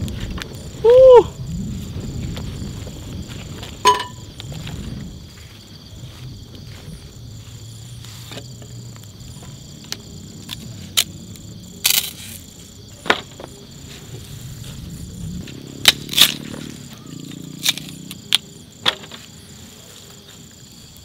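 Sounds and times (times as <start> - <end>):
campfire wood cracking and popping: 0.0 - 0.8, 1.5 - 5.2, 8.6 - 13.5, 14.8 - 16.7
night insects chirring: 0.0 - 21.0.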